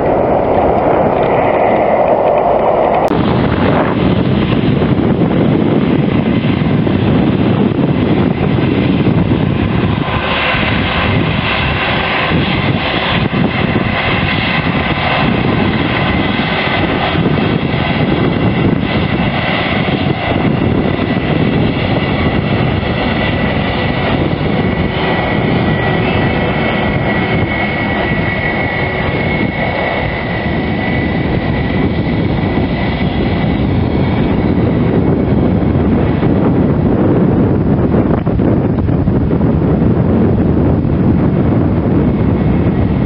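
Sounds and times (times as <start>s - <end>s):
jet engines rumbling with high whine: 0.0s - 43.0s.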